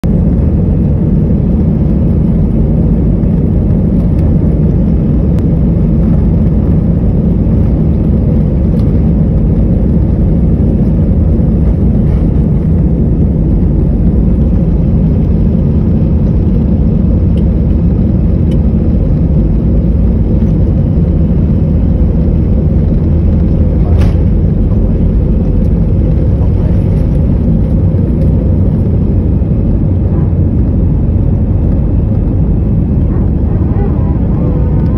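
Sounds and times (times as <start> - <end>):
jet engine rumble inside cabin: 0.0 - 34.9.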